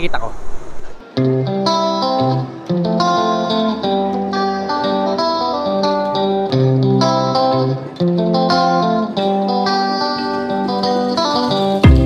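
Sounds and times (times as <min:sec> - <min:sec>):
plucked guitar melody: 0:00.9 - 0:12.0.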